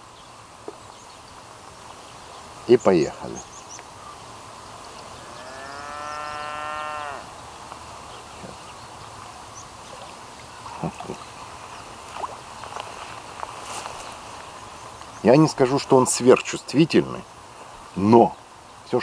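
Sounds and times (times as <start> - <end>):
cow mooing: 5.2 - 7.3.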